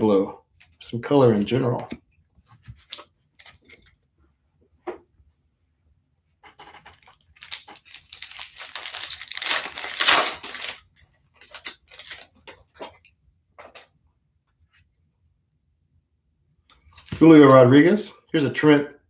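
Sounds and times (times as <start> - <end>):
foil wrapper tearing and crinkling: 7.3 - 12.6.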